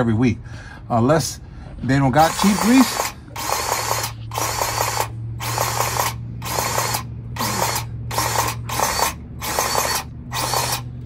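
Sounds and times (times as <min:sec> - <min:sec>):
continuous low hum: 0:00.0 - 0:11.0
grease gun motor pulsing: 0:02.2 - 0:11.0.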